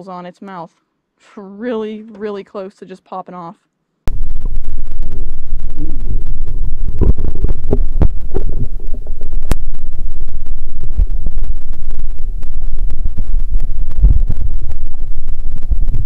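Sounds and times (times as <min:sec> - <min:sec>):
underwater water rumble: 0:04.1 - 0:16.0.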